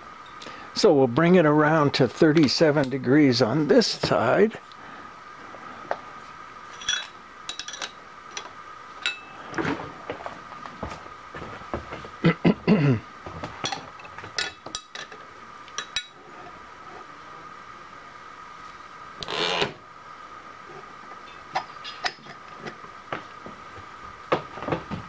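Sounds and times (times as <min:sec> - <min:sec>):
metal clinks and knocks: 0:06.7 - 0:09.3.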